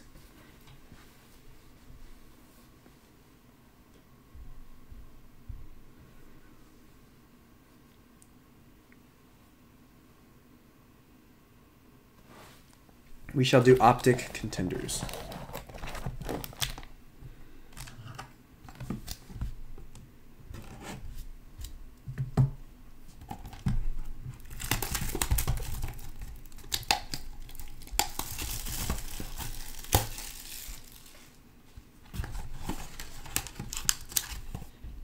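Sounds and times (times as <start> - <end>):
wrapping torn and crinkled: 13.8 - 16.9, 24.3 - 31.4, 32.2 - 34.7.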